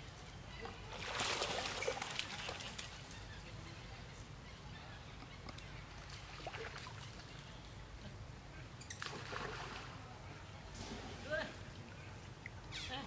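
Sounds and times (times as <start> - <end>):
faint splashes: 0.5 - 3.5, 5.5 - 7.8, 8.9 - 13.0.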